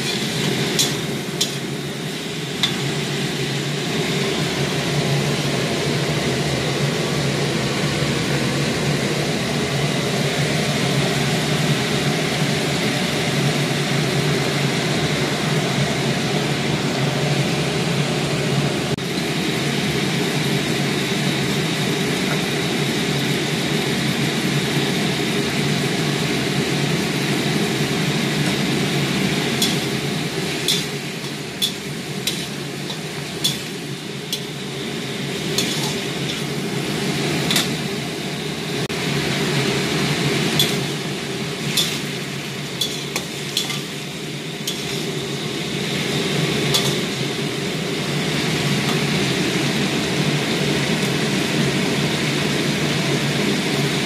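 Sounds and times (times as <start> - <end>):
food sizzling in a wok: 0.0 - 16.3, 19.0 - 54.0
metal spatula scraping pan: 30.6 - 34.6, 35.5 - 36.5, 41.7 - 42.1, 42.8 - 44.0, 44.6 - 45.2.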